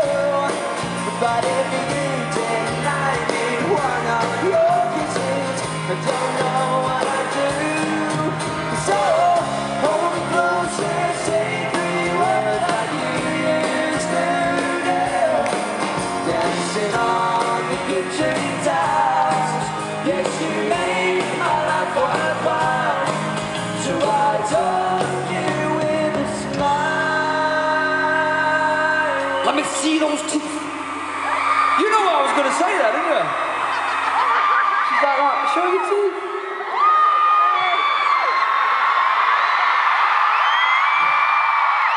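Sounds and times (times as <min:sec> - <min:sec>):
person singing: 0:00.0 - 0:29.5
live pop-rock band playing: 0:00.0 - 0:34.9.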